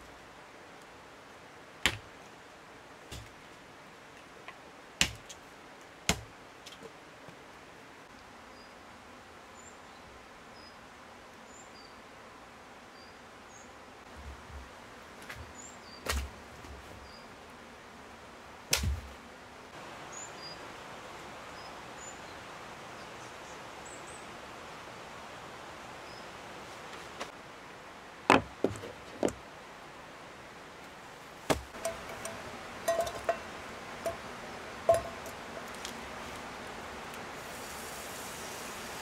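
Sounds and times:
outdoor hiss: 0.0s - 39.0s
sharp knocks: 28.3s - 29.4s, 34.9s - 35.4s.

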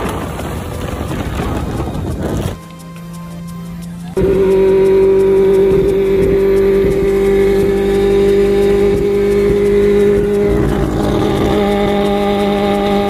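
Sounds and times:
rotary engine droning: 0.0s - 13.0s.

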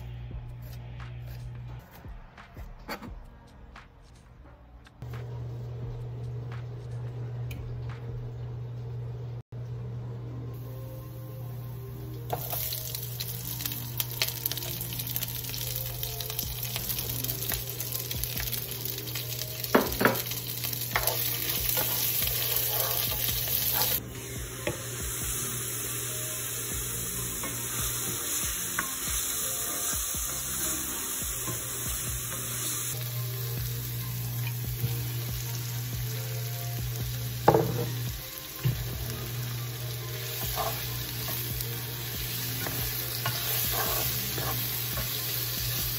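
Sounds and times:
vegetables sizzling in a frying pan: 12.2s - 45.9s.

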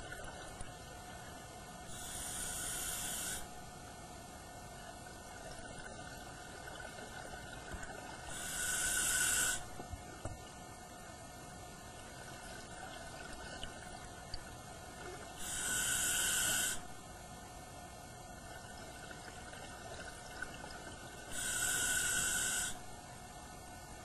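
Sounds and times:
scuba regulator hissing underwater: 1.9s - 3.5s, 8.3s - 9.7s, 15.4s - 16.8s, 21.3s - 22.8s.

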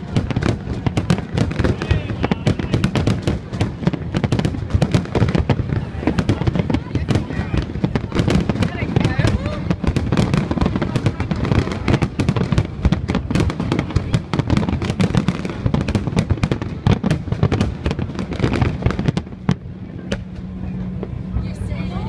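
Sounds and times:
fireworks bangs and crackles: 0.0s - 21.5s.

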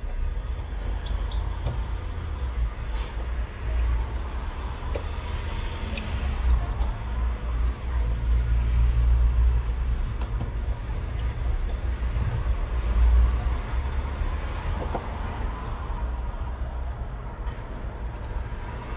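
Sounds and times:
screwdriver clicks: 0.9s - 2.6s, 5.8s - 7.0s.

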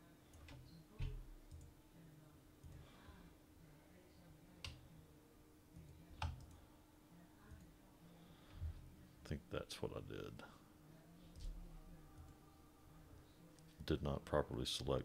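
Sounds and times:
faint steady hum: 0.0s - 15.0s
computer mouse clicking: 5.8s - 6.6s.

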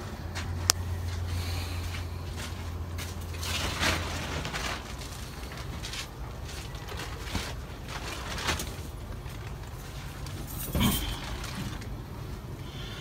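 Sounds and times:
low steady hum: 0.0s - 13.0s
scraping rustle: 2.4s - 13.0s.

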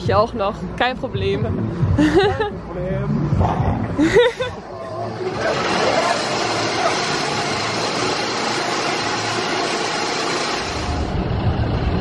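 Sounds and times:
deeper rumble: 0.0s - 12.0s
roller coaster wheels rumbling on rails: 4.6s - 12.0s.

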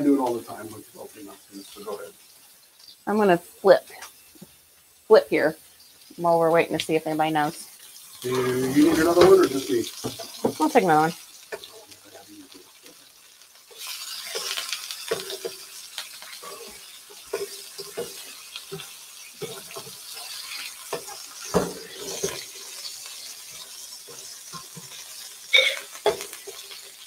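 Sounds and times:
patties sizzling in frying pan: 0.0s - 27.0s
utensils and glassware clinking: 19.4s - 22.8s.

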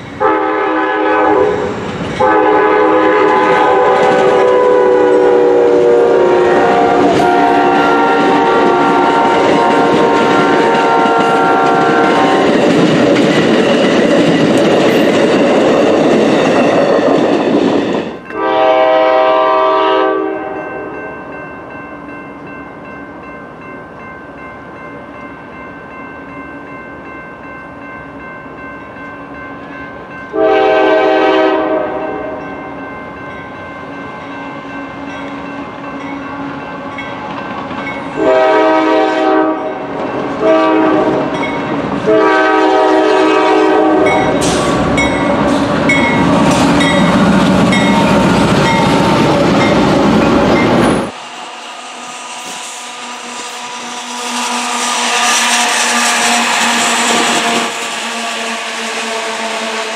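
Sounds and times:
train wheels rushing on rail: 0.0s - 20.6s, 28.2s - 59.9s
locomotive air horn blasts: 0.2s - 12.5s, 18.3s - 20.6s, 30.3s - 32.4s, 38.2s - 41.4s, 42.0s - 44.9s, 51.4s - 59.9s
train horn: 0.2s - 12.6s, 18.2s - 21.0s, 30.3s - 32.6s, 38.1s - 49.1s, 51.0s - 59.9s.

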